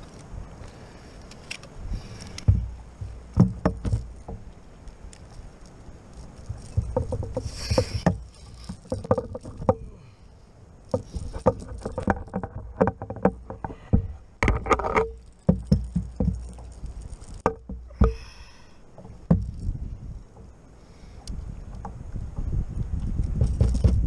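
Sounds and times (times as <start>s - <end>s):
wind and water rumble: 0.0s - 24.0s
fishing gear knocking on kayak hull: 2.4s - 4.5s, 6.4s - 9.9s, 10.9s - 16.8s, 17.4s - 18.4s, 19.0s - 19.7s, 23.3s - 24.0s.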